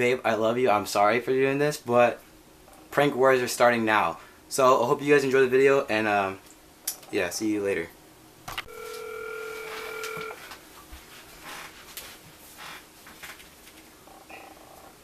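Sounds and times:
telephone ringback tone: 0:08.7 - 0:10.4.

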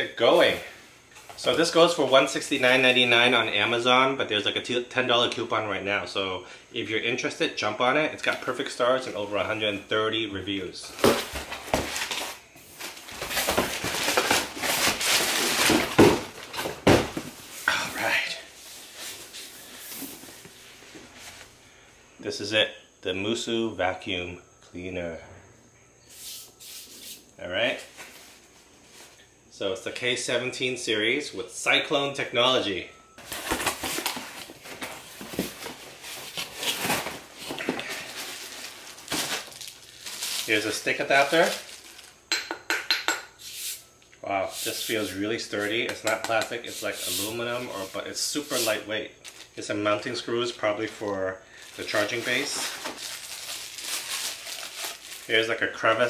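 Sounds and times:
cardboard and packing rustling: 0:00.2 - 0:02.9, 0:10.8 - 0:21.5, 0:33.2 - 0:42.3, 0:46.7 - 0:56.0.

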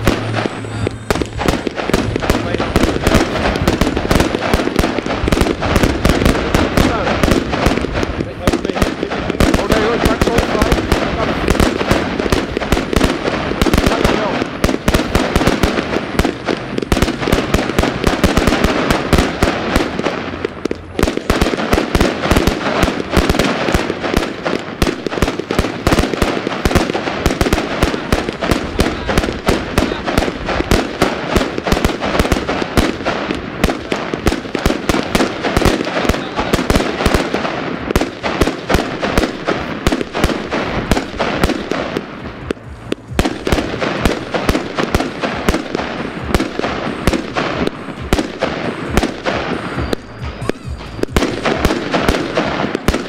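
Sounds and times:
fireworks crackling pops: 0:00.0 - 0:53.0.

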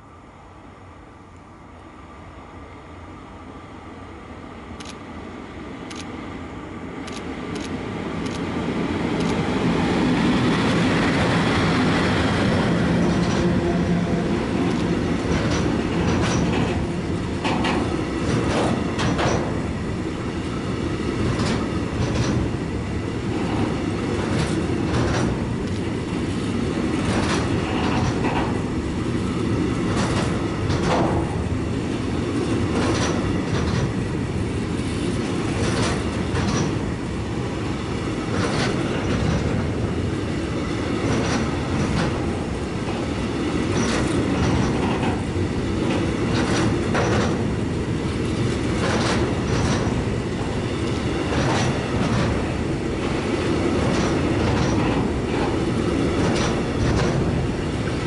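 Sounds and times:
train wagons rumbling past: 0:05.7 - 0:58.0.

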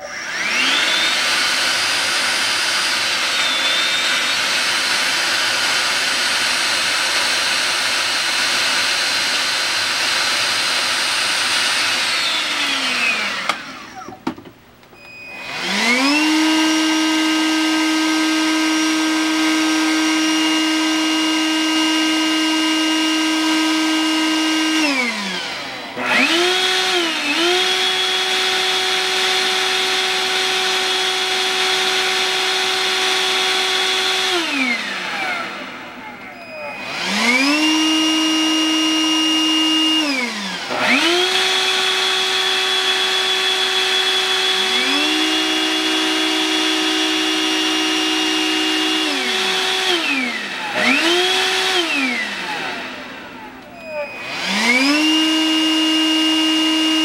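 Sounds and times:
handheld vacuum motor whine: 0:00.0 - 0:57.0.

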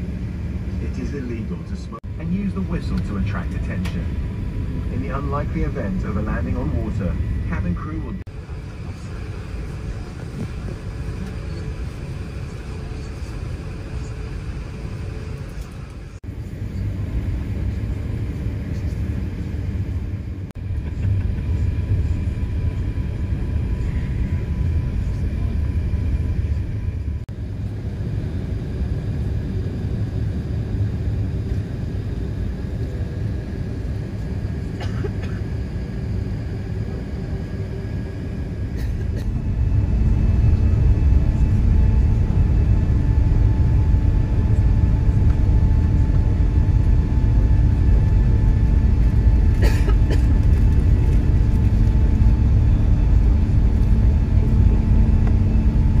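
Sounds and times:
airplane engines rumbling in cabin: 0:00.0 - 0:56.0.

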